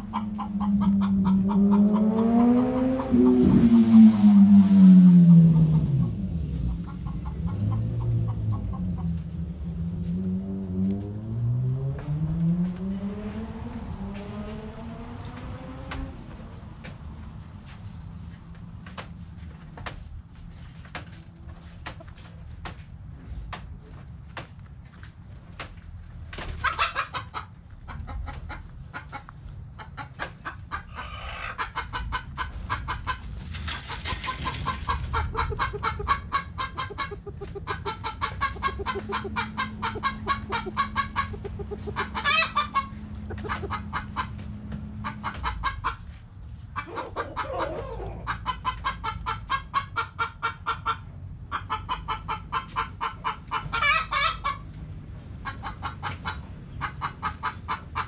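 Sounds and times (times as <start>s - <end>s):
chickens clucking: 0.0s - 4.3s, 5.6s - 9.4s, 25.5s - 58.0s.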